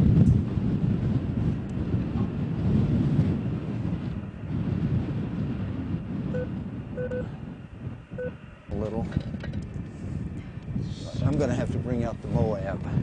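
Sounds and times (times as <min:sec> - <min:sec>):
wind buffeting microphone: 0:00.0 - 0:13.0
short electronic beep: 0:06.3 - 0:07.2.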